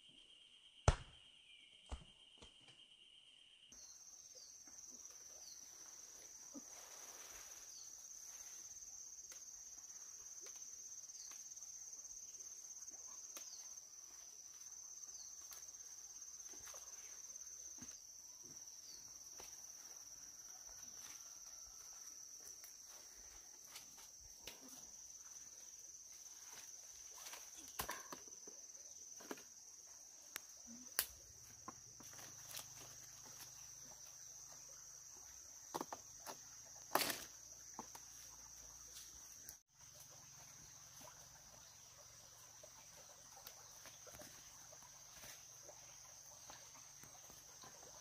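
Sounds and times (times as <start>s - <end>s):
insects trilling: 3.1s - 48.0s.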